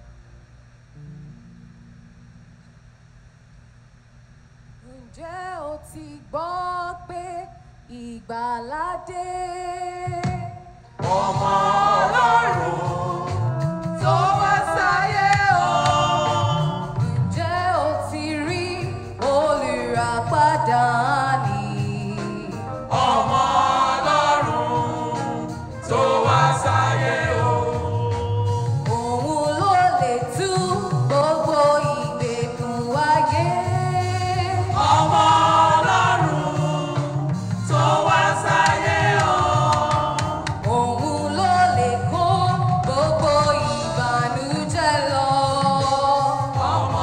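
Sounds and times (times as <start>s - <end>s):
women's choir singing a carol: 11.0s - 17.0s, 22.9s - 30.2s, 33.8s - 42.5s, 43.5s - 47.0s.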